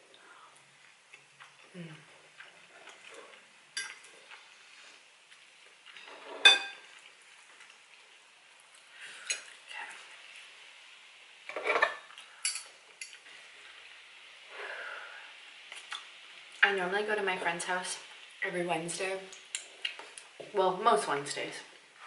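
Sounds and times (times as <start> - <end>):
cutlery clinking on a plate: 6.0 - 6.8, 11.5 - 13.2.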